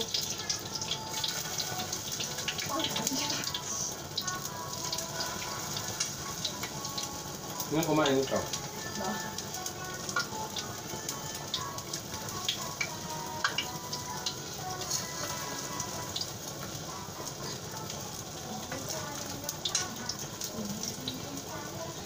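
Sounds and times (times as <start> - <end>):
food sizzling in a pan: 0.0 - 22.0
utensil clicking against pan: 12.4 - 15.1.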